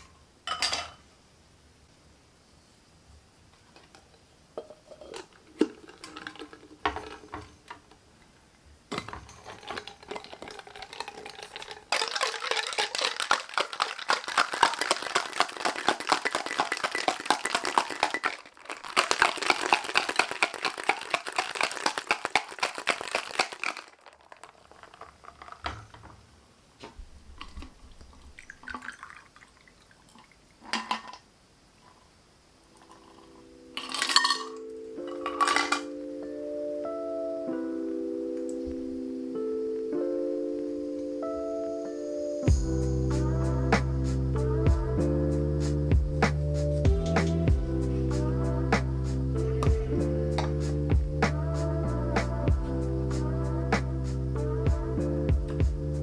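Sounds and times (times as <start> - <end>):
ice clinking: 0.0 - 1.0, 4.6 - 8.0, 8.9 - 26.2, 27.4 - 31.2, 32.7 - 36.0
drink poured into steel cup: 4.6 - 7.8, 8.9 - 26.0, 27.4 - 31.0
liquid pouring: 4.6 - 7.8, 8.9 - 26.1, 27.3 - 31.2
ice rattling in cocktail shaker: 4.6 - 7.9, 8.9 - 26.1, 28.3 - 31.2, 32.8 - 35.9.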